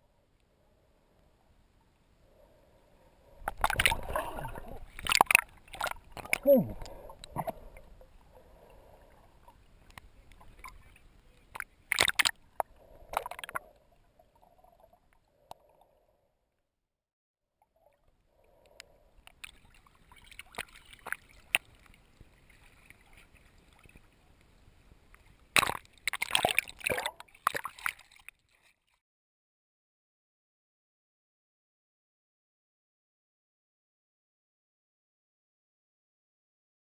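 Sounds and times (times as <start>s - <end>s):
underwater sloshing and gurgling: 0.1s - 16.3s, 17.6s - 29.0s
water splashing: 3.2s - 13.7s, 25.5s - 28.8s.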